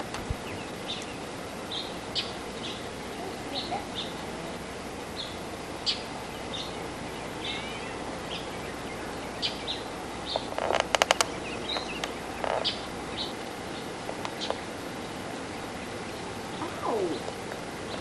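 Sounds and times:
steady hiss: 0.0 - 18.0
loud sharp clicks: 10.3 - 12.7.

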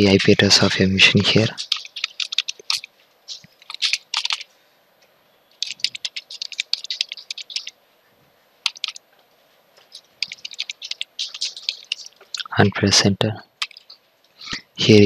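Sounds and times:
computer keyboard typing: 1.1 - 4.5, 5.6 - 7.8, 8.6 - 9.0, 9.8 - 12.5, 13.6 - 14.0.

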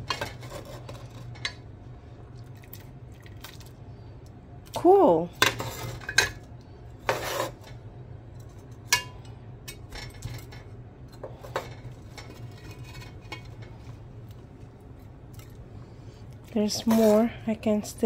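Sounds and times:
metal ladle scraping a pot: 7.0 - 7.8, 11.2 - 13.8.

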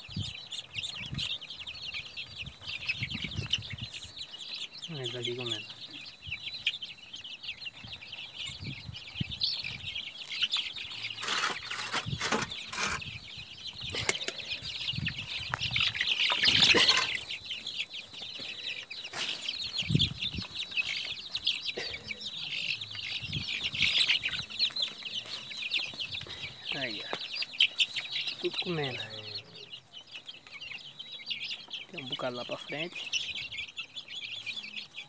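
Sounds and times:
chicks peeping: 0.0 - 35.0.

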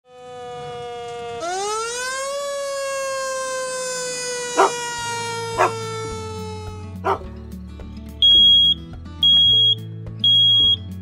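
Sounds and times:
fire engine siren wailing: 0.0 - 7.2
dog barking: 4.6 - 4.8, 5.6 - 5.9, 7.0 - 7.3.

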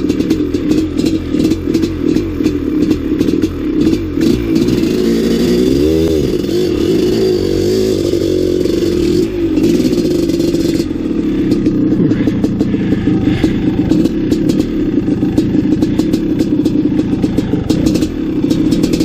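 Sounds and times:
dirt bike engine revving: 0.0 - 19.0
bike clattering over rough ground: 11.5 - 19.0.

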